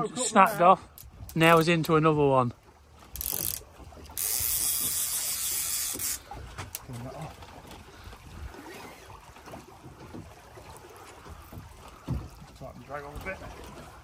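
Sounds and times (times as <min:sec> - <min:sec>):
sea water slapping a boat: 0:00.0 - 0:14.0.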